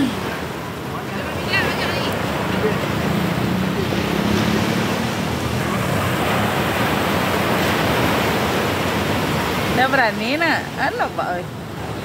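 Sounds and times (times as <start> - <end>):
ocean surf breaking on beach: 0.0 - 12.0.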